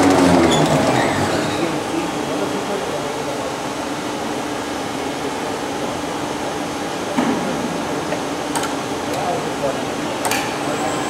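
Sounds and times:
machinery hum: 0.0 - 11.0.

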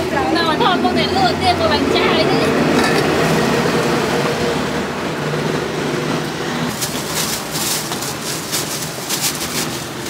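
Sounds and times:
street traffic hum: 0.0 - 10.0
plastic bag rustling: 6.7 - 10.0.

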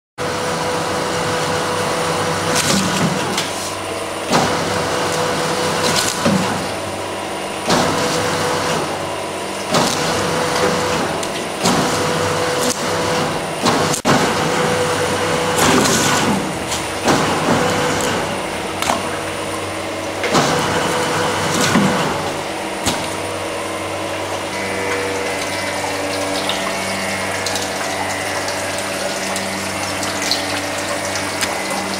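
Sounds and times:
fish being skinned by machine: 0.2 - 31.9
machine motor humming: 0.2 - 31.9.

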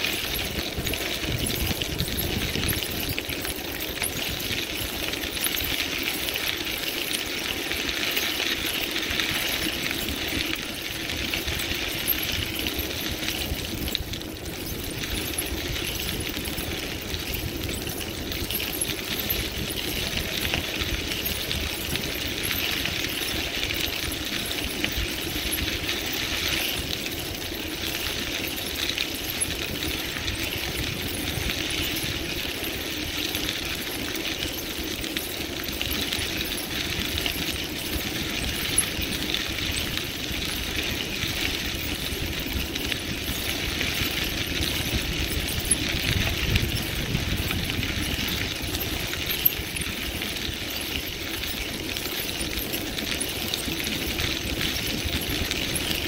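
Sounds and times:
bicycle rattling: 0.0 - 56.0
bicycle tyres crunching on gravel: 0.0 - 56.0.

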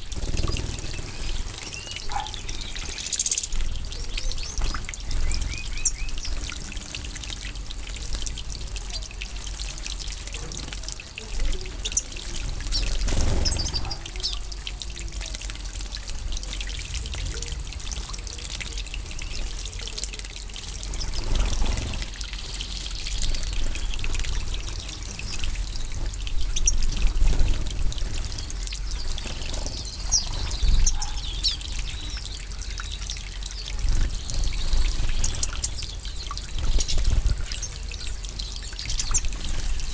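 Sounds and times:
water trickling and splashing: 0.0 - 39.9.

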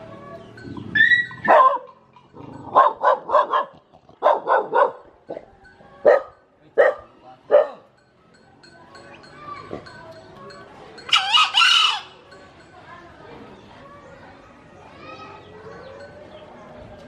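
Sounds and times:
dog barking: 1.4 - 2.0, 2.6 - 7.8.

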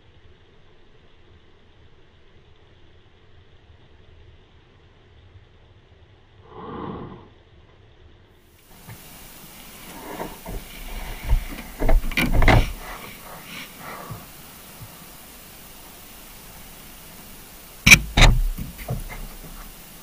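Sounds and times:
camera housing hiss: 8.5 - 20.0
knocks and scrapes: 8.8 - 15.0, 17.8 - 19.8
muffled bump: 9.8 - 15.0, 17.8 - 19.8.

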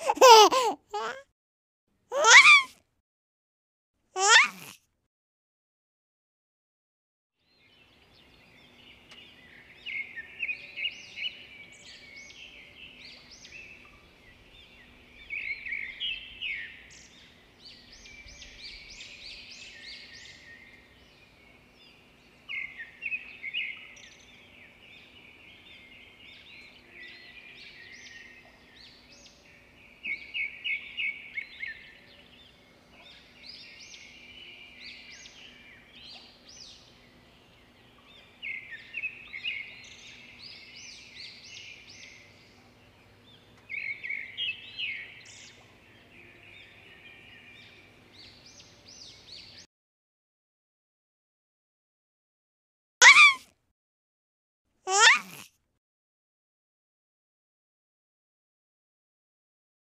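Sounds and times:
small birds chirping: 2.1 - 2.7, 4.2 - 4.7, 53.0 - 53.4, 54.9 - 55.4
faint steady hum: 7.9 - 49.6.

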